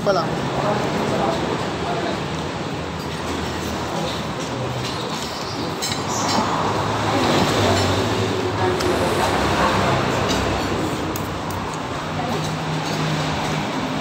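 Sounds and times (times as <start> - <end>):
road traffic noise: 0.0 - 14.0
cutlery clinking on a plate: 4.0 - 6.6
car engine passing: 6.0 - 14.0.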